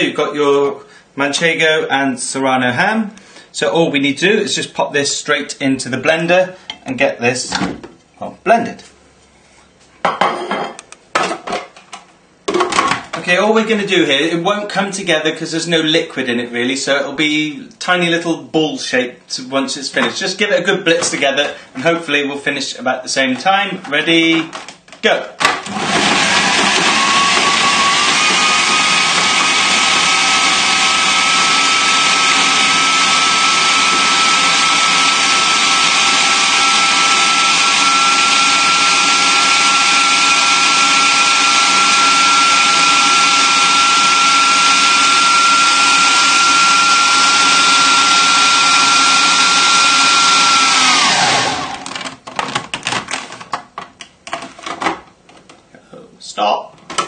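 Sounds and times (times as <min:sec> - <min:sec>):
food processor motor whining: 0:25.5 - 0:52.5.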